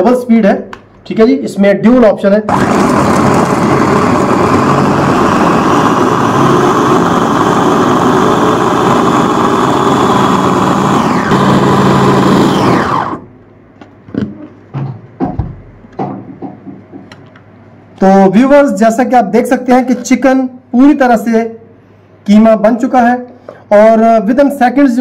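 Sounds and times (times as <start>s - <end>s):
electric food chopper running: 2.5s - 13.4s.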